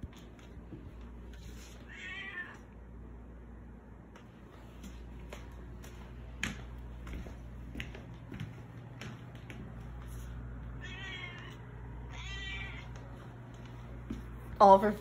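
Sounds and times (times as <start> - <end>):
cat meowing: 1.8 - 2.7, 10.8 - 13.0.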